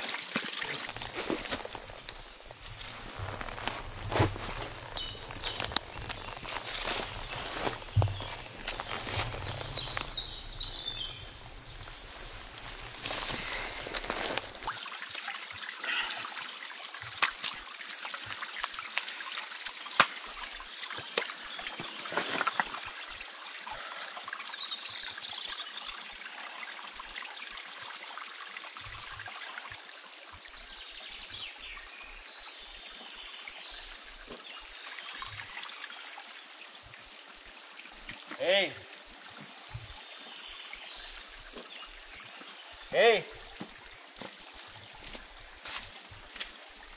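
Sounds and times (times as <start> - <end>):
stream trickling over stones: 0.0 - 46.9
loose rocks knocking: 0.7 - 14.7.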